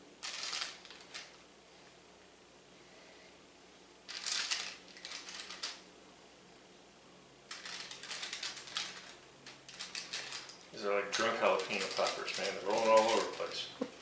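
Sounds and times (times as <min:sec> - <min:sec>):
paper liner crinkling: 0:07.5 - 0:13.7.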